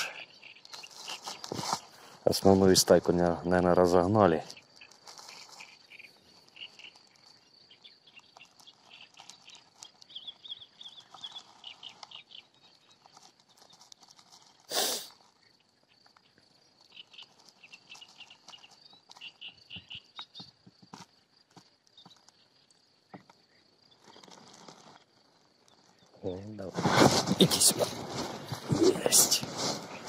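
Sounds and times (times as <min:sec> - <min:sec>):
insect trill: 0:00.0 - 0:30.0
quick repeated chirping calls: 0:04.5 - 0:13.7.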